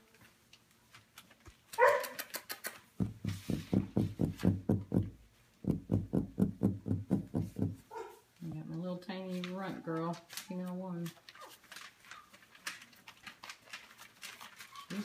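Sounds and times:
puppy yelp: 1.8 - 2.4, 7.9 - 8.2.

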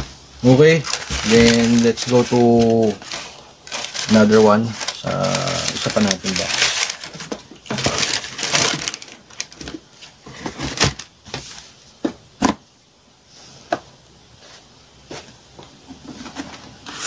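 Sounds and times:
paper and cardboard rustling: 0.0 - 11.8.

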